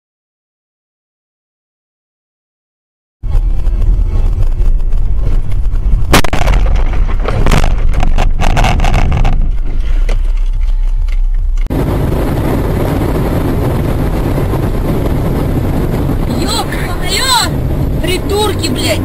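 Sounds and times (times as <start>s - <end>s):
engine and road rumble: 3.2s - 19.0s
road and wind noise: 3.2s - 19.0s
metal crunching and scraping: 6.0s - 11.7s
car crash bang: 6.1s - 9.6s.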